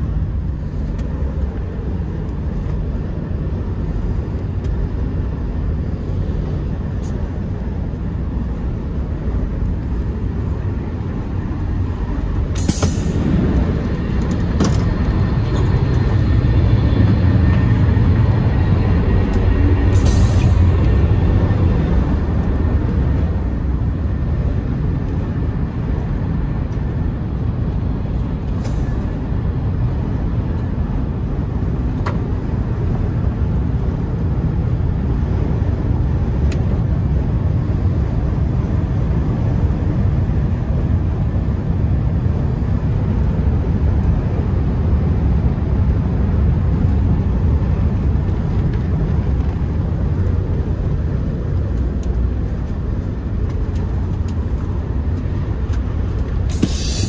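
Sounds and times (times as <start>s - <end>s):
train running low rumble: 0.0s - 57.0s
sliding doors hissing: 12.6s - 13.8s, 56.5s - 57.0s.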